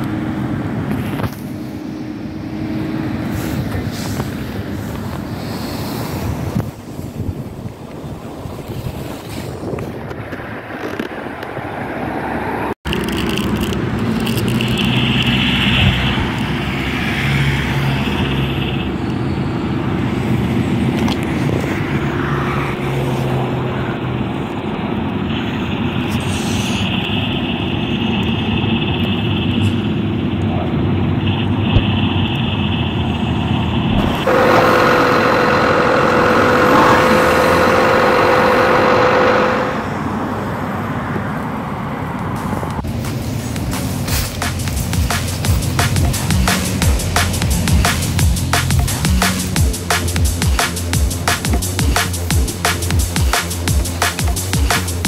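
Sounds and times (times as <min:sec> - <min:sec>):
car engine drone: 0:00.0 - 0:55.0
road traffic: 0:00.0 - 0:55.0
high steady hum: 0:31.6 - 0:40.6.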